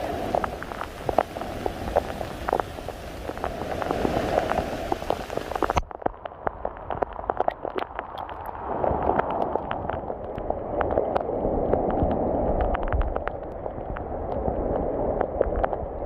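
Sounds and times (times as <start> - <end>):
rain hiss: 0.0 - 5.8
raindrop taps: 0.0 - 15.9.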